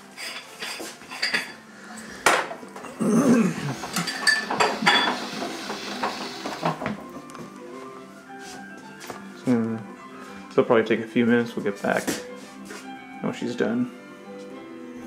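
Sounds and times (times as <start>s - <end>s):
dishes and utensils clinking: 0.0s - 7.3s.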